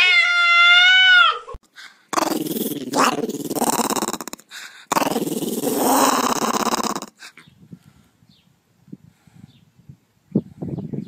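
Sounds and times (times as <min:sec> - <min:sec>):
dog growling: 0:02.1 - 0:07.4.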